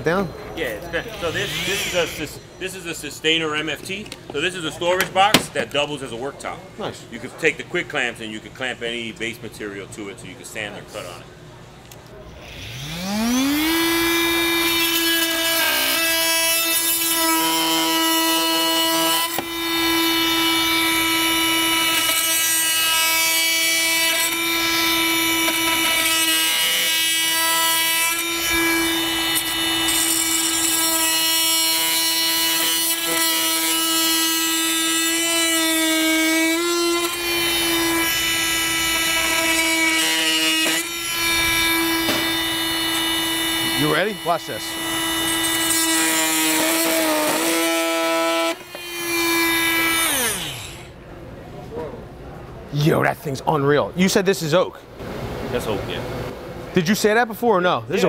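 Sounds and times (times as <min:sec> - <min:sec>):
oscillating multi-tool motor hum: 0:01.0 - 0:02.4, 0:12.3 - 0:50.9.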